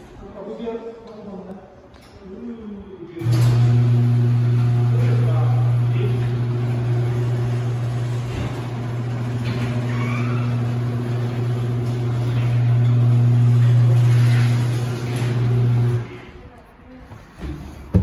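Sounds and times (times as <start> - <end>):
garage door opener motor hum: 3.2 - 16.3.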